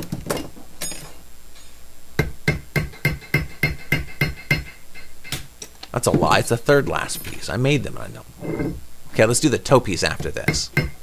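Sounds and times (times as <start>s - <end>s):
hammer tapping metal rivets: 10.4s - 11.0s.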